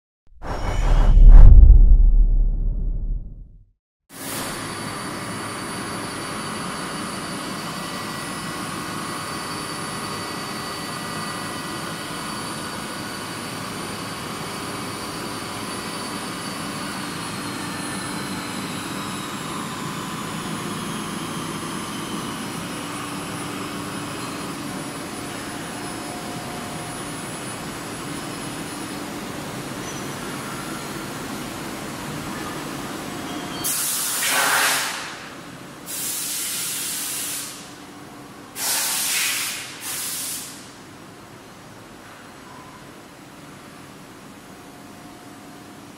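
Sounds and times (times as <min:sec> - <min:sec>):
loud hiss burst: 0:33.8 - 0:35.1, 0:35.9 - 0:37.6, 0:38.6 - 0:40.7.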